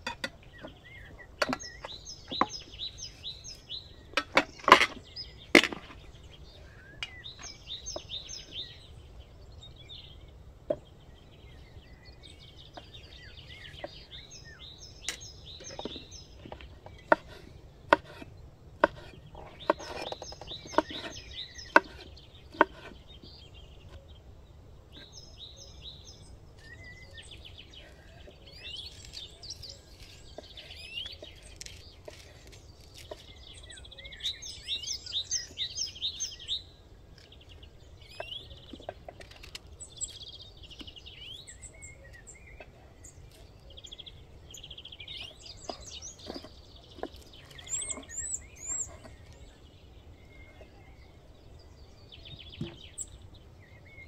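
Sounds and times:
songbirds chirping and singing: 0:00.0 - 0:54.0
knife chopping on wooden board: 0:15.8 - 0:23.0.

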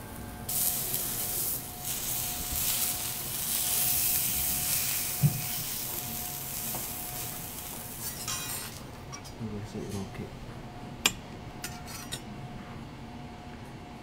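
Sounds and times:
seafood sizzling on a griddle: 0:00.2 - 0:08.9.

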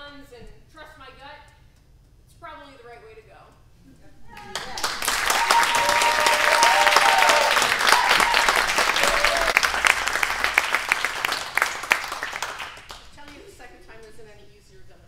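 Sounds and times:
audience applauding: 0:04.3 - 0:13.2.

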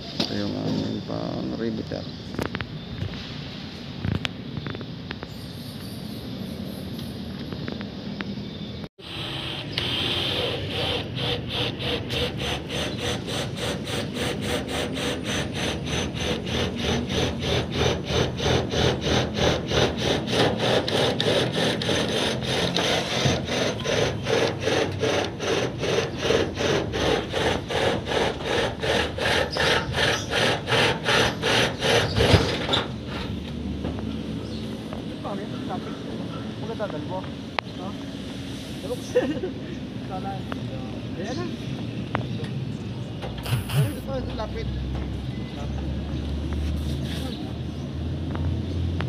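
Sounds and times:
hand tool scraping back and forth: 0:09.2 - 0:33.4, 0:43.4 - 0:44.0.

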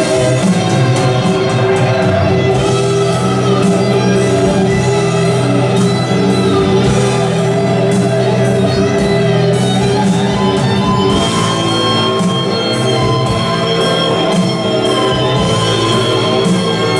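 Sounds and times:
background music with held notes: 0:00.0 - 0:16.9.

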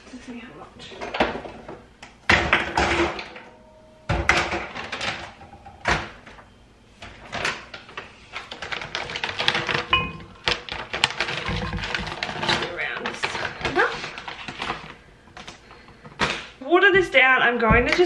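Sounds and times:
kitchen knocks and rustles: 0:00.8 - 0:03.5, 0:04.1 - 0:16.6, 0:17.6 - 0:18.0
frozen fruit clattering into jug: 0:07.2 - 0:16.6.

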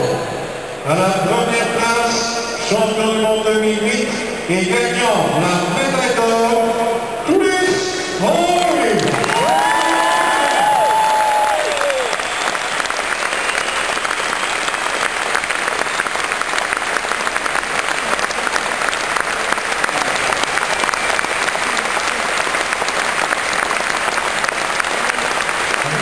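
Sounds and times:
crowd applauding: 0:08.2 - 0:26.0.

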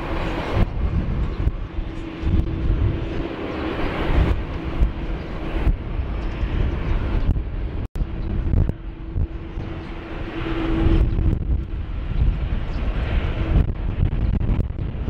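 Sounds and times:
jet engines taxiing: 0:00.0 - 0:15.0
wind buffeting microphone: 0:00.0 - 0:15.0.

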